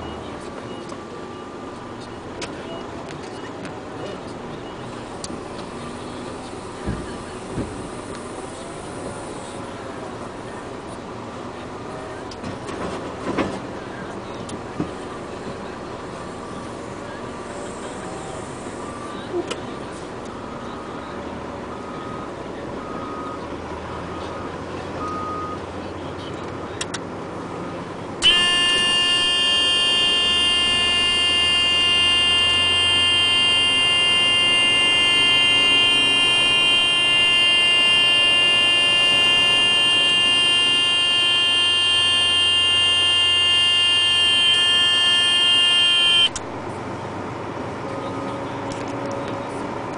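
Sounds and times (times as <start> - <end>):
loud buzzy tone: 28.2 - 46.4
low engine hum: 46.2 - 49.9.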